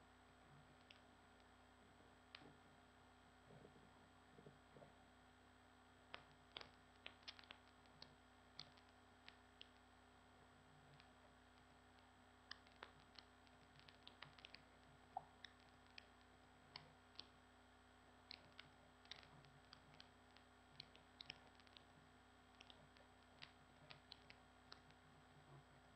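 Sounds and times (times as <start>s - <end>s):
low steady hum: 0.0s - 25.9s
computer mouse clicking: 22.5s - 25.0s.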